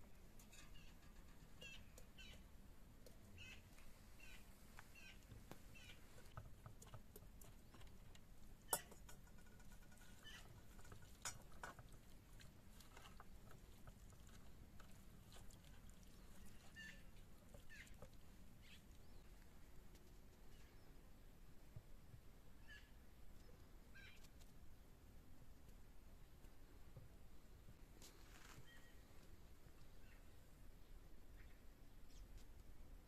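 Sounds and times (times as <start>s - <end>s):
faint bird chirps: 0.5s - 2.5s, 3.3s - 6.2s, 10.0s - 10.6s, 16.1s - 18.0s, 18.6s - 19.4s, 20.4s - 21.0s, 22.6s - 24.3s, 28.6s - 29.2s, 29.8s - 30.4s, 31.3s - 32.4s.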